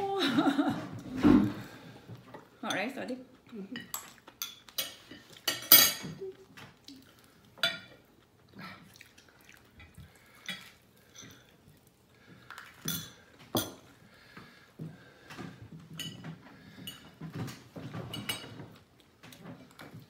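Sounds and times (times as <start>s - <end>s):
plates and cutlery clinking: 3.8s - 6.4s, 7.6s - 8.1s, 15.4s - 20.0s.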